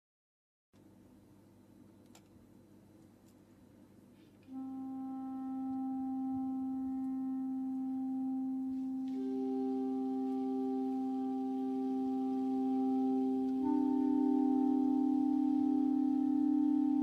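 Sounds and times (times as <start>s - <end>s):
clarinets holding long notes: 4.5s - 17.0s.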